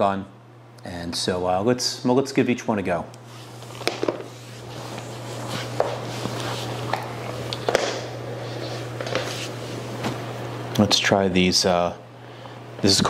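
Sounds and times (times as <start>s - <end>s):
steady low hum: 0.0s - 13.0s
soft rustling: 3.2s - 7.5s, 8.3s - 10.3s
shoes set down on wooden floor: 3.8s - 4.3s, 6.9s - 8.1s.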